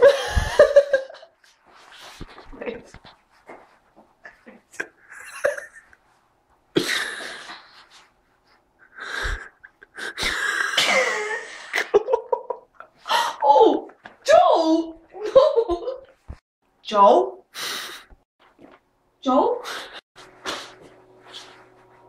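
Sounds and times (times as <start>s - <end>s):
woman laughing: 0.0s - 1.4s, 4.3s - 6.0s, 10.0s - 12.8s, 15.2s - 16.1s.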